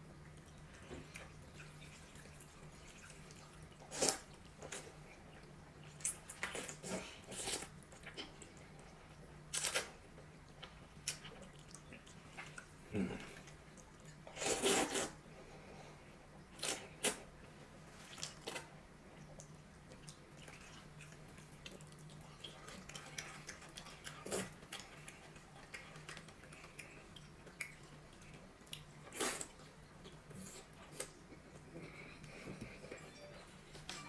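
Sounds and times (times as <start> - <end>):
noodle slurp: 14.3 - 15.2
chewing: 17.9 - 33.0.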